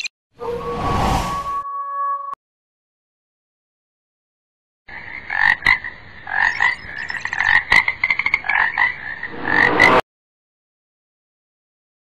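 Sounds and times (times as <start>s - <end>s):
frog croaking: 4.9s - 9.9s.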